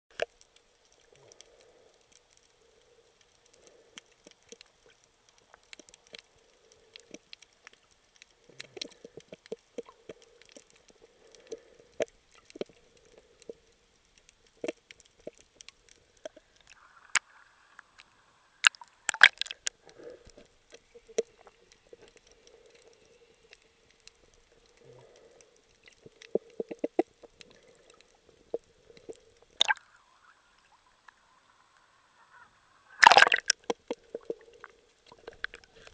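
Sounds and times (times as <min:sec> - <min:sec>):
sharp underwater clicks: 0:00.1 - 0:30.0, 0:33.0 - 0:35.9
faint muffled underwater murmur: 0:29.6 - 0:33.3.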